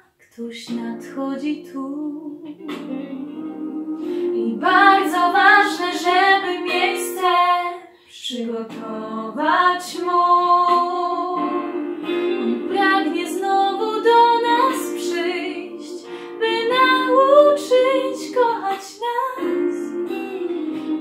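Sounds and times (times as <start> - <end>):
woman singing long held notes: 0.4 - 21.0
sustained instrumental backing: 10.8 - 18.0.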